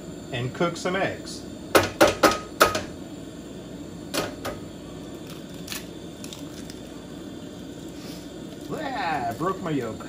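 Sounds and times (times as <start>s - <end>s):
gas stove hissing: 0.0s - 10.0s
eggshells cracking against griddle: 4.1s - 10.0s.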